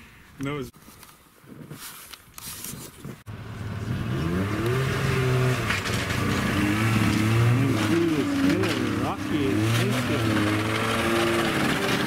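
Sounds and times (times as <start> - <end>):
snowmobile engines revving: 3.4 - 12.0.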